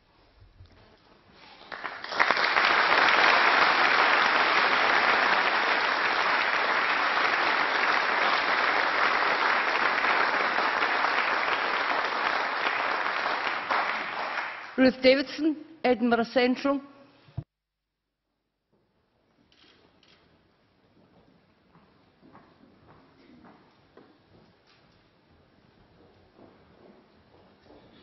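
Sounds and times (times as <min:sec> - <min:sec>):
sustained applause: 0:01.5 - 0:14.8.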